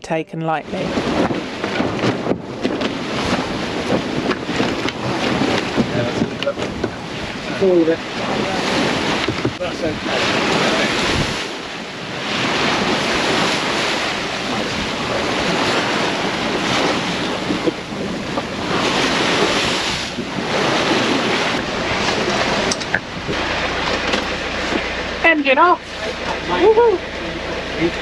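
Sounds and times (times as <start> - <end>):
wind buffeting microphone: 0.5 - 28.0
rough sea rushing past: 0.6 - 28.0.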